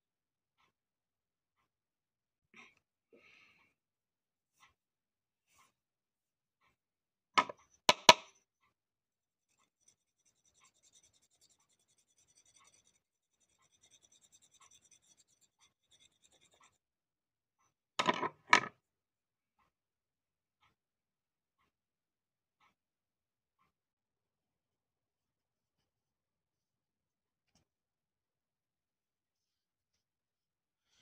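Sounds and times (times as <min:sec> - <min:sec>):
sharp knocks and clatters: 0:18.0 - 0:18.8.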